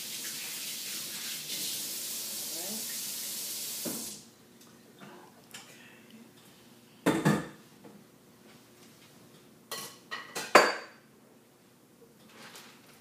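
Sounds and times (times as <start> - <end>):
kitchenware clattering: 7.1 - 7.6, 9.7 - 11.0.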